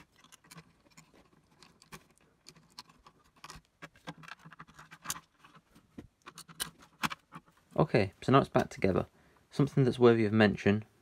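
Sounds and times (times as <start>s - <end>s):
faint plastic clicks and scrapes: 0.0s - 7.8s.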